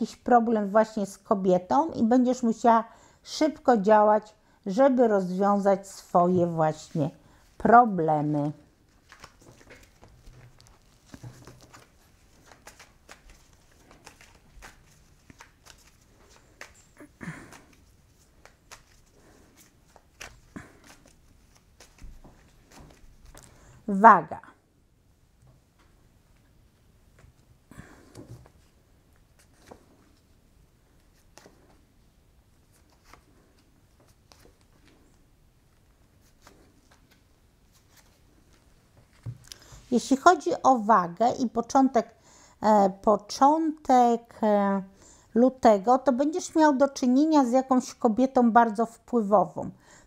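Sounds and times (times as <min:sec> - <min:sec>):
cards being shuffled: 0:08.8 - 0:23.6, 0:27.8 - 0:30.3, 0:30.9 - 0:31.9, 0:32.6 - 0:35.2.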